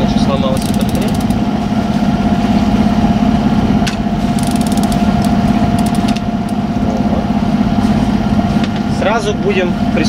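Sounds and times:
diesel engine running: 0:00.0 - 0:10.0
rapid ticking: 0:00.5 - 0:01.5, 0:04.3 - 0:06.6.

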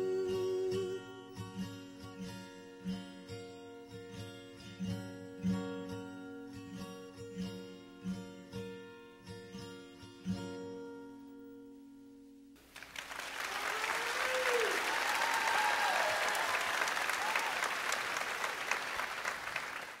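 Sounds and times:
audience applause: 0:12.6 - 0:20.0
voices cheering: 0:13.1 - 0:20.0.

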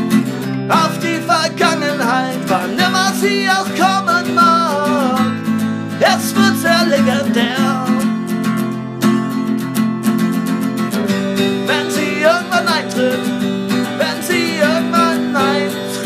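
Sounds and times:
strummed acoustic guitar: 0:00.0 - 0:16.0
person singing: 0:00.6 - 0:08.2, 0:11.5 - 0:16.0.

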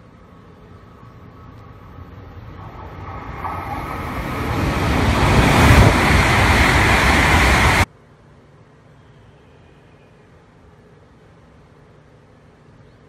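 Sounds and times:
train passing at speed: 0:00.1 - 0:07.9.

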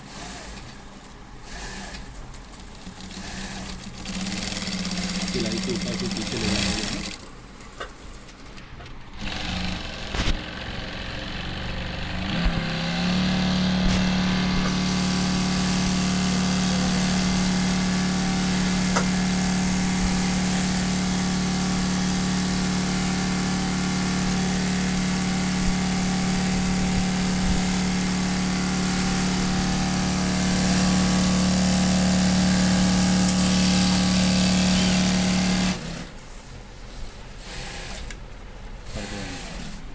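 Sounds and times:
sewing machine stitching leather: 0:00.0 - 0:07.4, 0:09.1 - 0:36.2, 0:37.4 - 0:39.9.

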